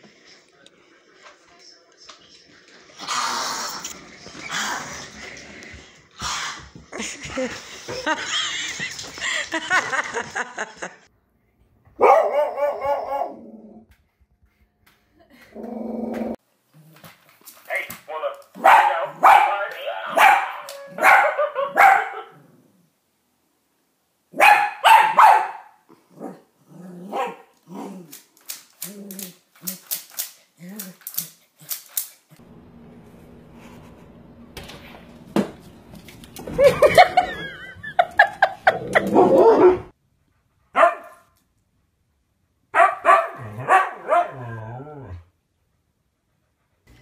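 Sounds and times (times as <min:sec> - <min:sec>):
dog barking: 0:12.0 - 0:13.4, 0:18.6 - 0:22.4, 0:24.3 - 0:25.8, 0:27.1 - 0:27.5, 0:40.7 - 0:41.2, 0:42.7 - 0:44.5.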